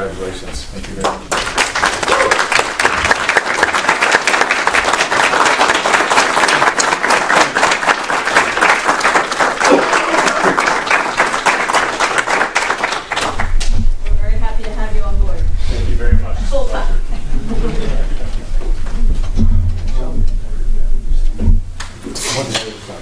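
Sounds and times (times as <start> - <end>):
small audience applauding: 1.0 - 13.8.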